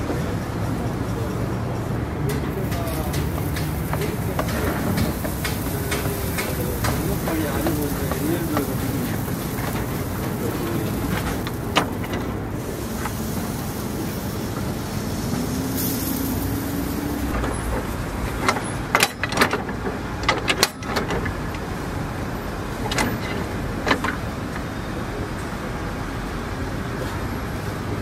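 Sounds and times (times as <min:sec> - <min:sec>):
engine rising: 0:00.0 - 0:28.0
street traffic: 0:00.0 - 0:28.0
metallic clicks and clanks: 0:02.2 - 0:13.2, 0:17.3 - 0:21.7, 0:22.8 - 0:24.7.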